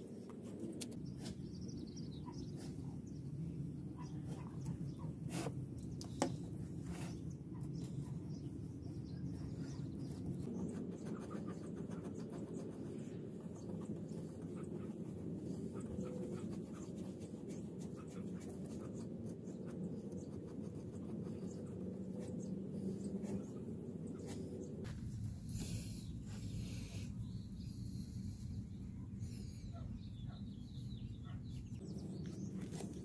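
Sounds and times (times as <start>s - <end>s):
paintbrush scratching and dabbing wood: 5.2s - 8.1s, 10.0s - 23.6s
low background rumble: 12.5s - 33.0s.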